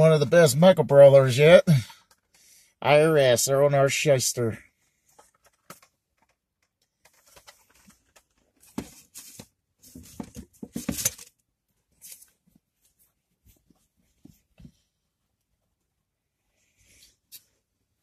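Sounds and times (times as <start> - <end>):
rustling of merchandise: 4.9 - 15.9.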